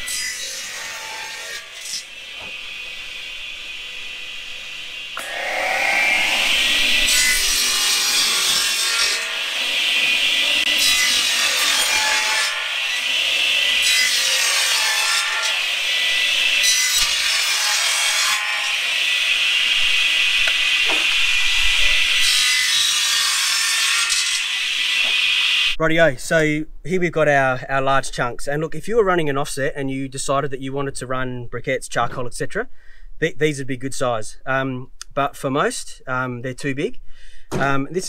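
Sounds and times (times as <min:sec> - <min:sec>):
saw blade cutting wood: 0:00.0 - 0:25.8
saw motor whining: 0:01.6 - 0:17.2.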